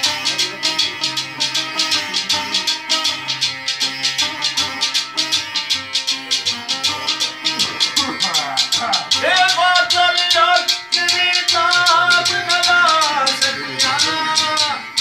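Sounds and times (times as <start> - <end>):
rattling percussion beat: 0.0 - 15.0
sitar playing: 0.0 - 15.0.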